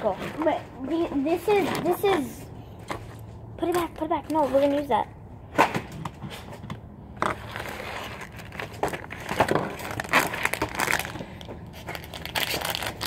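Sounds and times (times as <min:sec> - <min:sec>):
plastic bag crinkling: 0:07.4 - 0:13.0.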